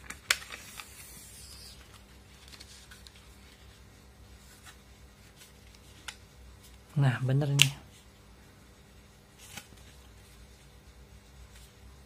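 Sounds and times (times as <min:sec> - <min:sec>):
plastic film rustling: 0:00.0 - 0:03.8.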